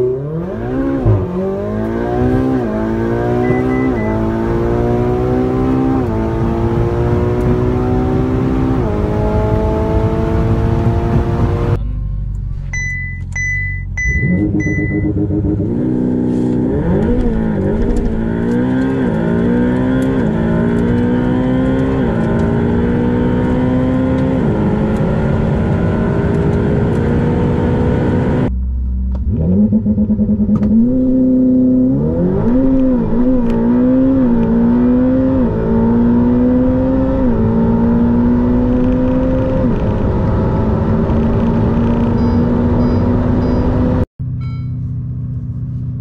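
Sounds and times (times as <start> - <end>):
car engine accelerating hard: 0.0 - 11.8, 14.1 - 44.1
short electronic beeps: 3.2 - 4.7, 12.7 - 15.2, 42.0 - 44.9
low hum: 10.7 - 16.2, 27.9 - 35.7.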